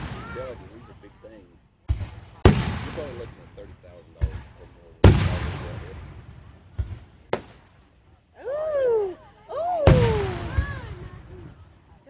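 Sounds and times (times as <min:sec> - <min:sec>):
firework booms: 0:00.0 - 0:08.1, 0:09.7 - 0:11.8
small firework pops: 0:06.7 - 0:07.8.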